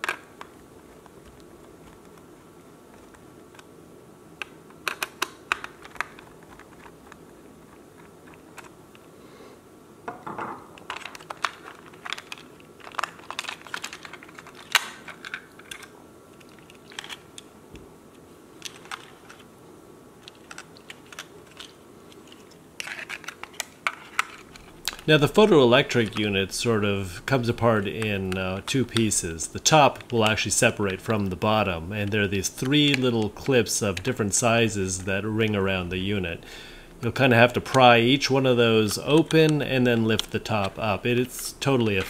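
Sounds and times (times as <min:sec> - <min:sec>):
screwdriver and plastic parts clicking: 0:04.4 - 0:07.2, 0:10.8 - 0:17.5, 0:20.2 - 0:25.1, 0:38.9 - 0:40.8.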